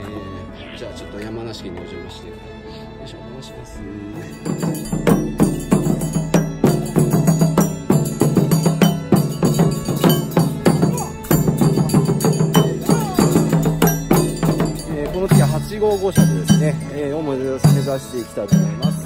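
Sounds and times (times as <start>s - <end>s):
taiko drums beating: 4.2s - 19.0s.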